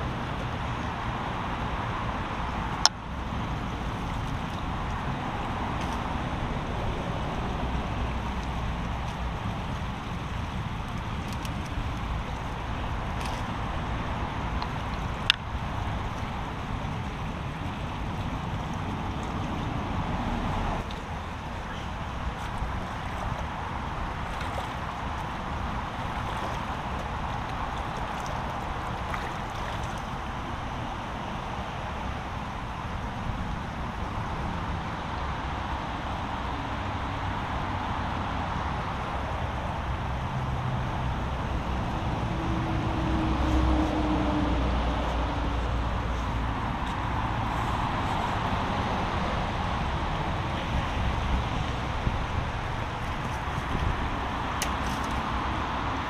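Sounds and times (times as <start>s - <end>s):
road traffic noise: 0.0s - 56.0s
heavy vehicle passing: 41.6s - 53.0s.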